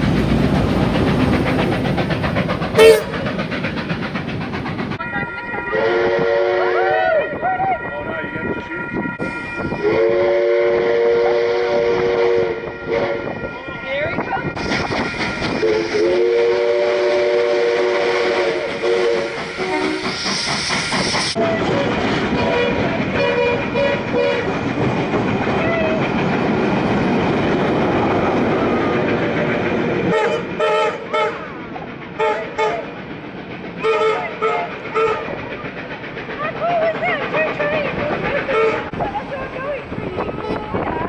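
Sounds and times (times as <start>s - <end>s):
train rumble and clickety-clack: 0.0s - 41.0s
steam locomotive chime whistle: 2.8s - 3.2s, 5.0s - 14.6s, 15.3s - 20.4s.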